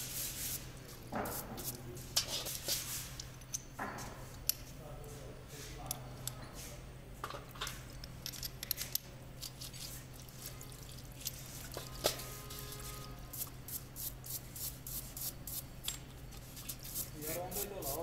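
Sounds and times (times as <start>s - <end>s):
metal parts clinking: 7.9s - 9.6s
brush scrubbing: 16.4s - 18.0s.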